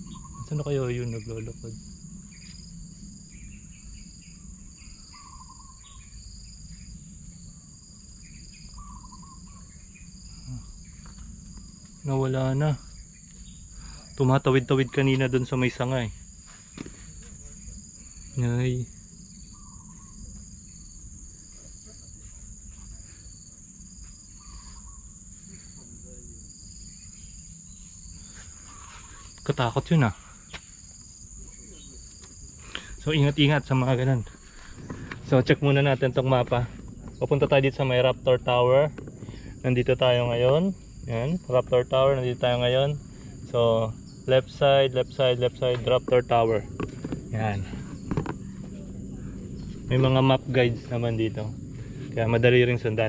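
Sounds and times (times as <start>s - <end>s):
birds chirping: 0.0s - 53.0s
high-pitched insect drone: 0.0s - 53.0s
insect trilling: 0.0s - 53.0s
bird whistled phrase: 5.1s - 5.8s
low rumble: 32.4s - 53.0s.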